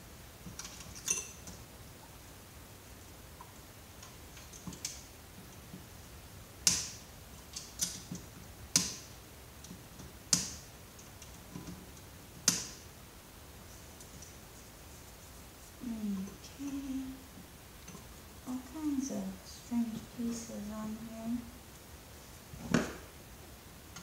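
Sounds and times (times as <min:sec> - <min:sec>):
tools and parts clicking: 0:00.4 - 0:01.6.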